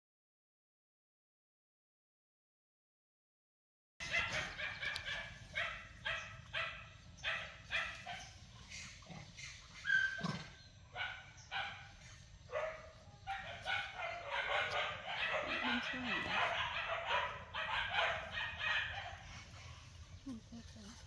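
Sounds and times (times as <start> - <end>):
high yelping animal calls: 4.0 - 20.0.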